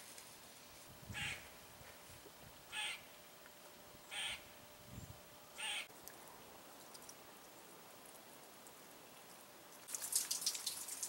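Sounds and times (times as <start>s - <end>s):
bird calling: 2.7s - 3.1s, 4.0s - 4.6s, 5.6s - 5.9s.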